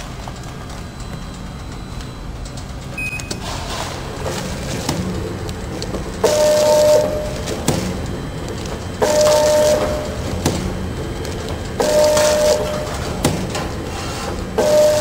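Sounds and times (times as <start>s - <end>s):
machine steady tone: 0.0s - 15.0s
packing machine humming: 0.0s - 15.0s.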